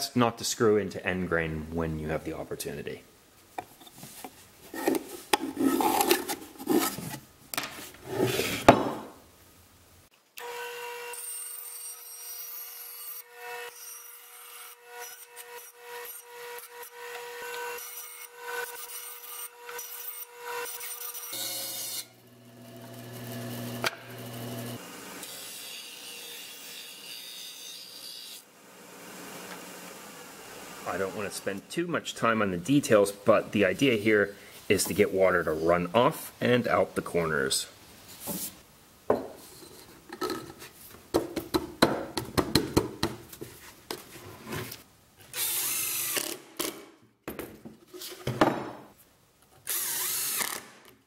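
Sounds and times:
wood rubbing and knocking: 3.6 - 9.1
bandsaw cutting wood: 14.6 - 31.6
disc sander running: 21.4 - 25.3, 28.7 - 31.2.

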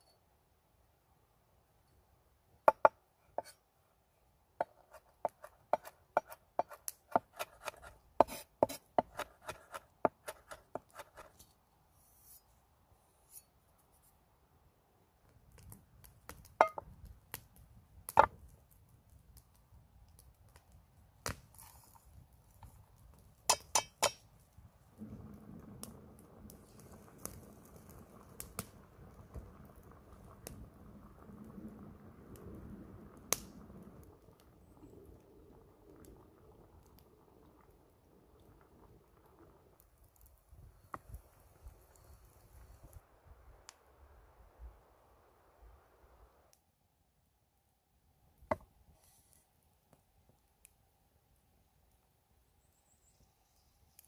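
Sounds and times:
low rushing noise: 25.0 - 34.6.

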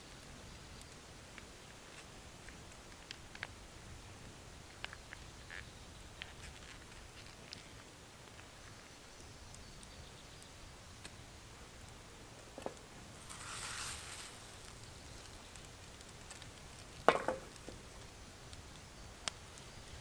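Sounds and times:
meat sizzling in frying pan: 13.1 - 17.0
food shaken in pan hissing: 13.2 - 14.6.

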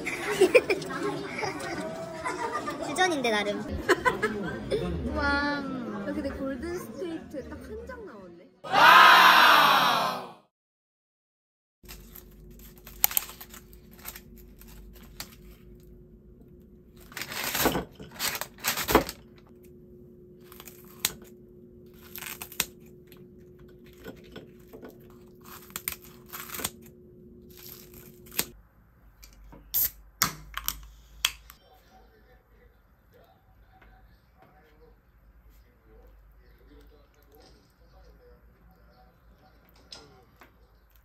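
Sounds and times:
packaging crinkling and tearing: 11.8 - 15.6, 17.0 - 19.4, 20.4 - 21.3, 21.9 - 23.0, 25.1 - 26.9, 27.5 - 28.6
steady low hum: 11.9 - 39.7.

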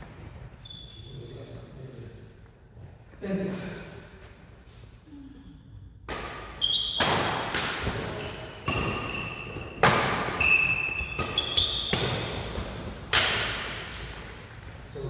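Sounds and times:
rackets hitting shuttlecock: 6.0 - 14.8
trainers squeaking on floor: 6.6 - 7.0, 8.1 - 9.8, 10.4 - 12.2.

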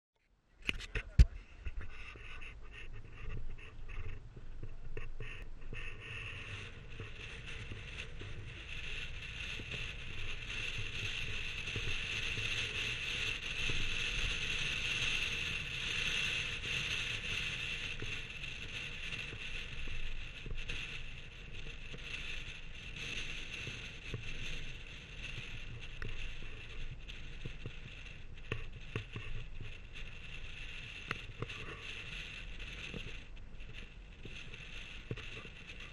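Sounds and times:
wind hiss: 0.7 - 35.9.

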